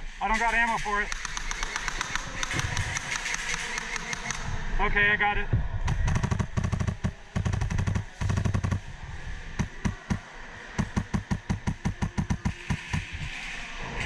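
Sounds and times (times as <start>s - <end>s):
airsoft rifle firing: 1.1s - 4.4s, 5.9s - 8.8s, 10.8s - 13.2s.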